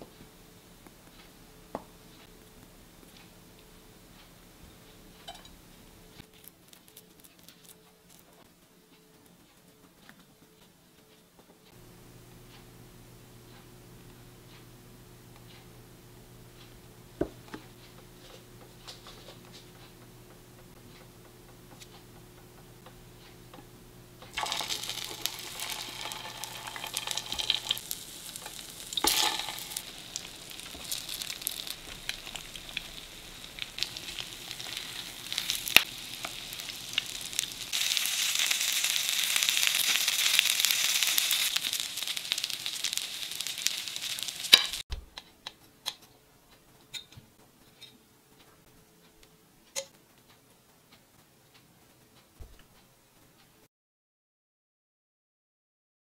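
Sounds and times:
low steady hum: 0:00.0 - 0:53.6
food sizzling in oil: 0:24.3 - 0:44.8.

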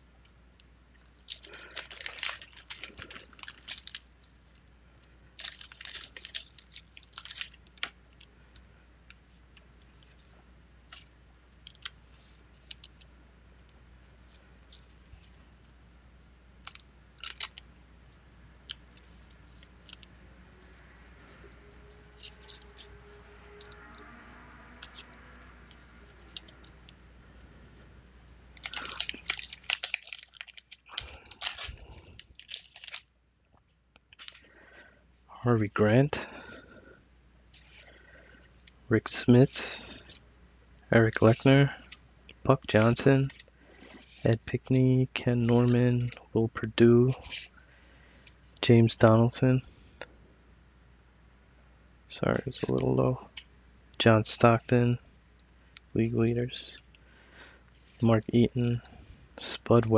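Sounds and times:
packaging crinkling and rustling: 0:01.0 - 0:04.6, 0:05.4 - 0:08.3, 0:10.9 - 0:13.0, 0:16.6 - 0:17.6, 0:24.8 - 0:26.7, 0:28.6 - 0:33.1, 0:34.0 - 0:34.5, 0:37.6 - 0:40.2, 0:45.4 - 0:46.2
wrapper tearing open: 0:01.2 - 0:04.1, 0:05.4 - 0:07.9, 0:16.7 - 0:17.6, 0:28.6 - 0:33.1.

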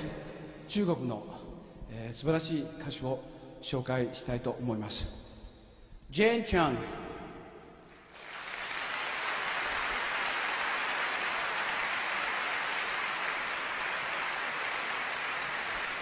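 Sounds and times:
audience applauding: 0:07.9 - 0:16.0.

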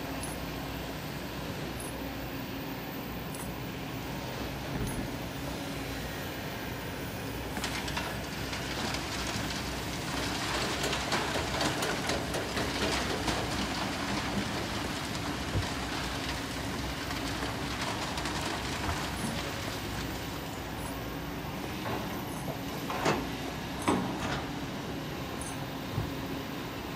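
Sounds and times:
excavator diesel engine running: 0:00.1 - 0:26.9
sand and stones rattling: 0:07.5 - 0:20.8.

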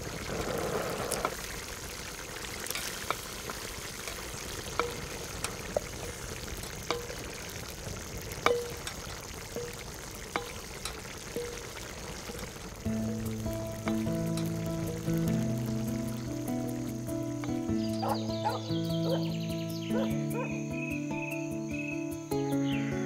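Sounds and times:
pot sizzling: 0:00.0 - 0:22.9
sharp pops: 0:02.6 - 0:18.9.

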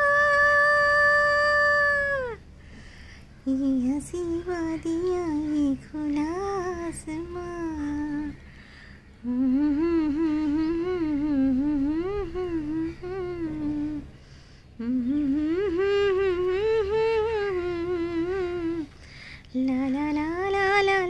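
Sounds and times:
woman humming a melody: 0:00.0 - 0:02.4, 0:03.4 - 0:08.4, 0:09.2 - 0:14.1, 0:14.8 - 0:18.9.

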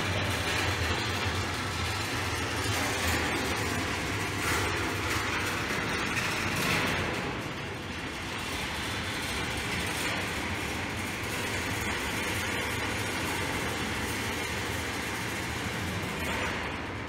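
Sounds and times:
balls rolling on wire tracks: 0:00.0 - 0:17.0.

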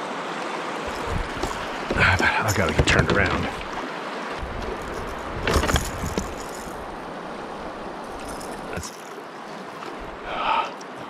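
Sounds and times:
river water moving: 0:00.0 - 0:11.0.

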